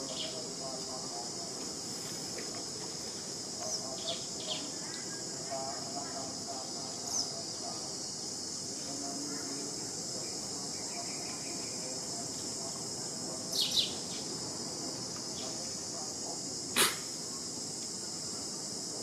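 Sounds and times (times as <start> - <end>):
high-pitched insect drone: 0.0 - 19.0
short sharp click: 16.8 - 17.0.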